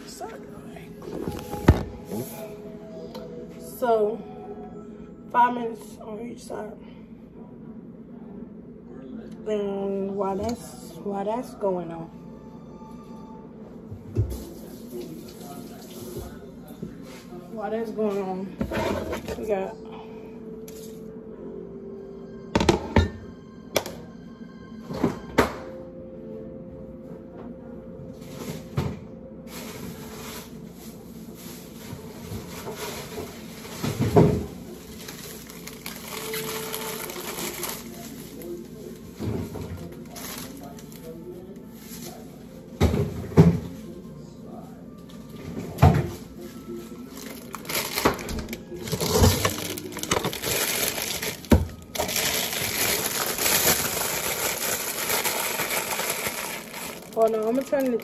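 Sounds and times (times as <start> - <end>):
plastic bag crinkling: 31.2 - 38.7, 40.0 - 41.1, 46.9 - 58.0.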